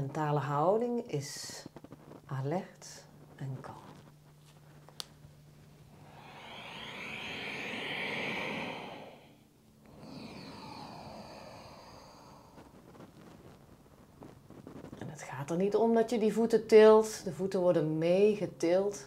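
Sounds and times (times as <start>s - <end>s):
deep exhale through mouth: 5.9s - 12.6s
soft inhale: 5.9s - 13.1s.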